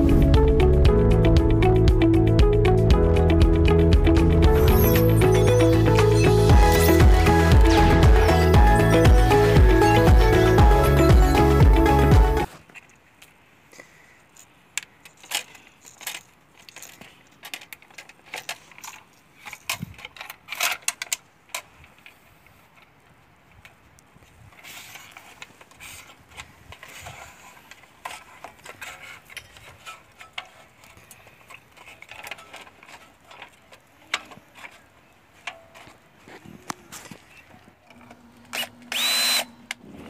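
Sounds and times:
rustling: 0:14.0 - 0:40.0.

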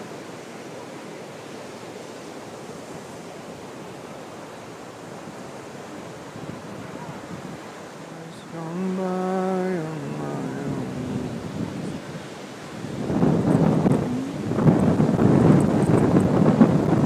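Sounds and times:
ocean surf breaking: 0:00.0 - 0:17.0
wind on microphone: 0:05.0 - 0:17.0.

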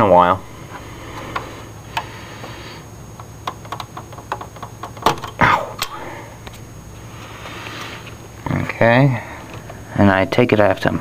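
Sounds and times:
light clicks and taps of parts: 0:03.2 - 0:06.6.

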